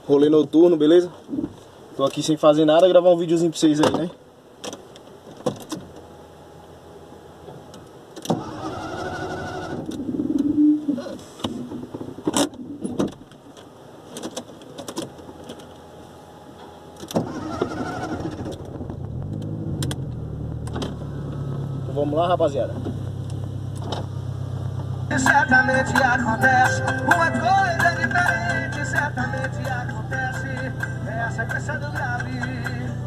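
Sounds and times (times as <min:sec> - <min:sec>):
car starter cranking: 0:08.2 - 0:10.1, 0:17.0 - 0:21.0
car engine idling: 0:15.1 - 0:33.0.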